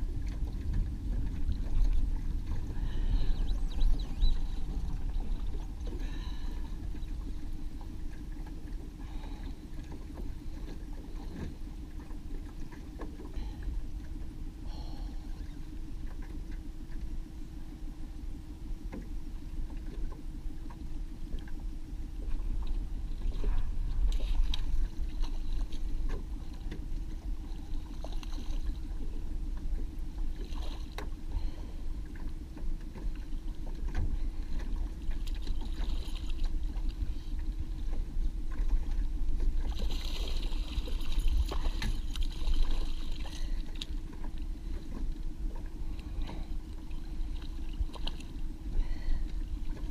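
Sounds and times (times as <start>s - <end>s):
boat motor droning: 0.0s - 49.9s
water splashing: 32.9s - 49.9s.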